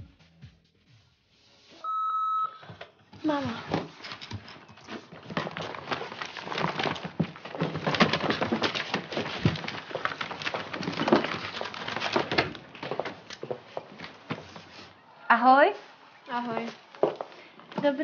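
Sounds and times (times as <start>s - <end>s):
papers and objects shuffled on desk: 2.7s - 15.0s.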